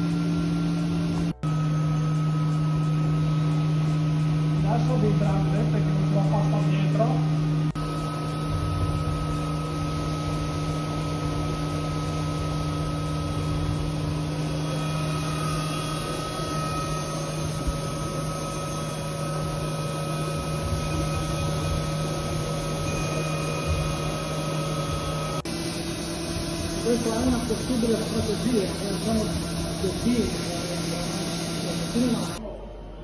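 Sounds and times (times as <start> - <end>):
milling machine hum and whine: 0.0 - 33.0
coolant spray hissing: 8.2 - 32.4.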